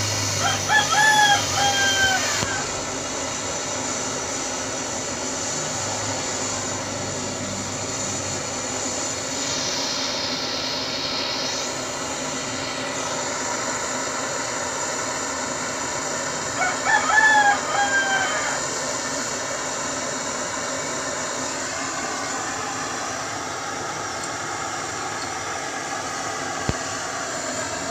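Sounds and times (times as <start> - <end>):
gas torch hissing: 0.0 - 27.9
rooster crowing: 0.3 - 2.8, 16.4 - 19.2.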